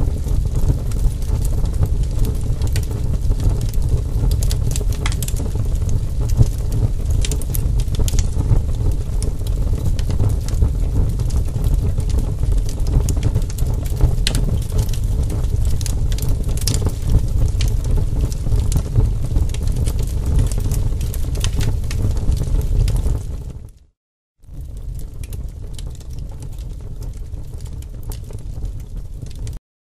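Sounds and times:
campfire crackling: 0:00.0 - 0:23.5, 0:24.5 - 0:29.5
low rumble: 0:00.0 - 0:23.8.

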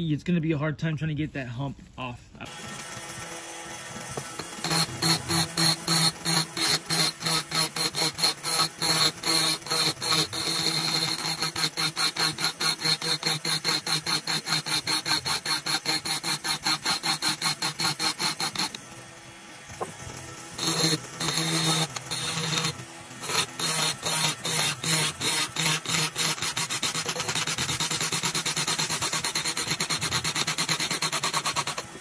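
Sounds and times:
burr grinding metal: 0:02.4 - 0:32.0
rotary tool whine: 0:02.4 - 0:32.0.

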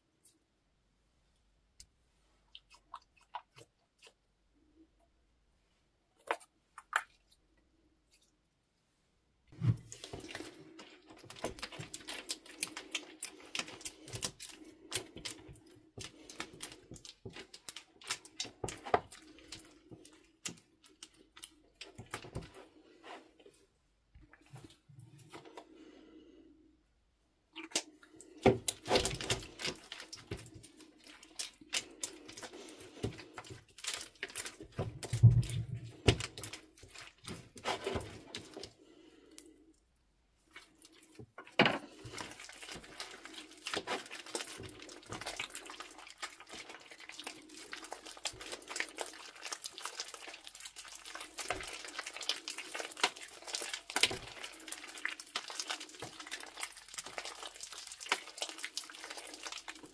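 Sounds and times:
slime squelching and popping: 0:09.6 - 0:22.6, 0:27.5 - 0:38.8, 0:40.5 - 0:59.9.

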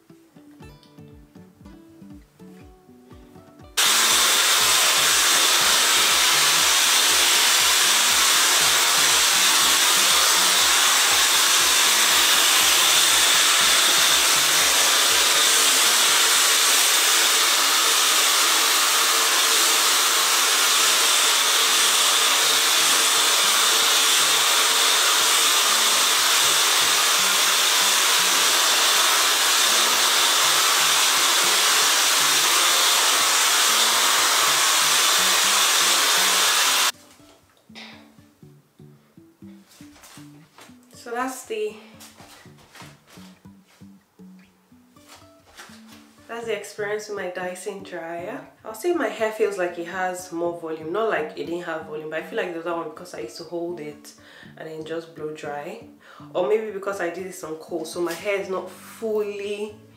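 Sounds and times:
faint background music with beat: 0:00.0 - 0:03.8, 0:36.9 - 0:59.9
hair dryer blowing: 0:03.8 - 0:37.0.

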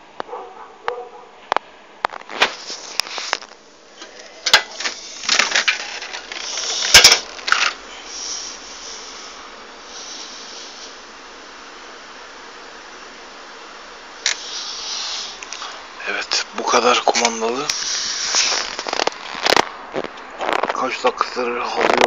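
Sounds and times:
faint steady hiss: 0:00.0 - 0:22.0
curtain rustling: 0:04.1 - 0:07.8.

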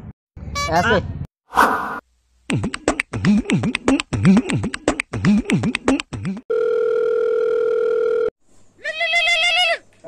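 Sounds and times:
beatbox-style music: 0:02.5 - 0:06.4
steady telephone tone: 0:06.5 - 0:08.3.

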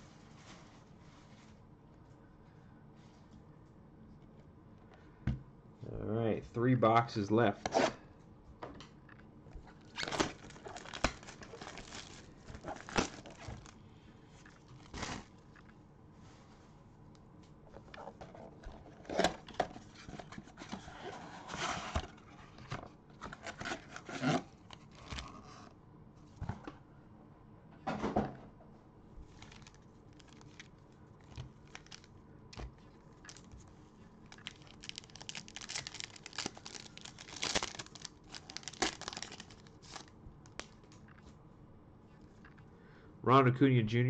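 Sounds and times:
wrappers tearing and crinkling: 0:09.7 - 0:13.8, 0:14.5 - 0:15.4, 0:29.2 - 0:32.1, 0:33.1 - 0:33.6, 0:34.2 - 0:41.0
box and cards handled: 0:10.0 - 0:13.7, 0:17.7 - 0:25.6, 0:34.3 - 0:40.8.

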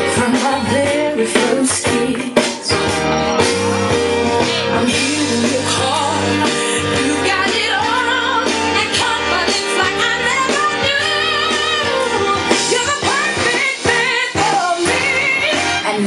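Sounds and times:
person singing dance song: 0:00.0 - 0:16.0.

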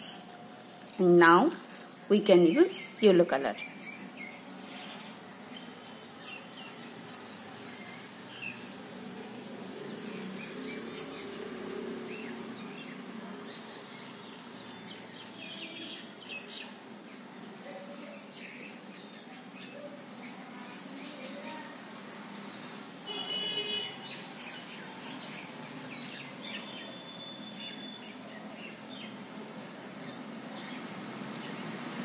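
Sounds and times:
crayon scratching on paper: 0:04.6 - 0:19.3, 0:20.0 - 0:32.0
faint high chirps: 0:26.1 - 0:28.2.

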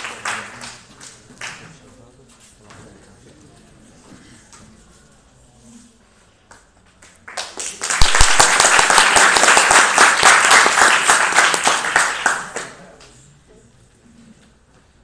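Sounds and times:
crowd applauding: 0:00.0 - 0:01.6, 0:07.2 - 0:13.0.

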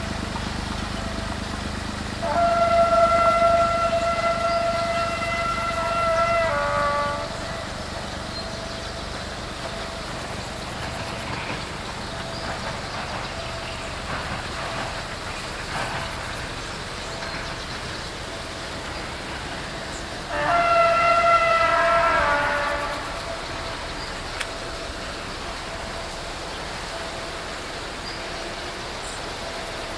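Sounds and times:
distant train: 0:00.0 - 0:29.9
locomotive air horn blast: 0:02.0 - 0:08.8, 0:20.2 - 0:25.2.

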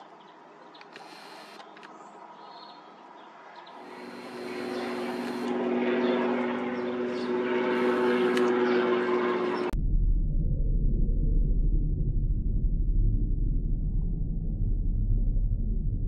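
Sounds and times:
helicopter flying overhead: 0:00.0 - 0:09.8.

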